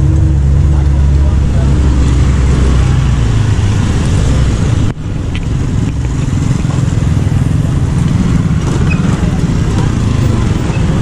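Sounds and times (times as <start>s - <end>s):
motorcycles riding past: 0.0s - 11.0s
road traffic noise: 0.0s - 11.0s.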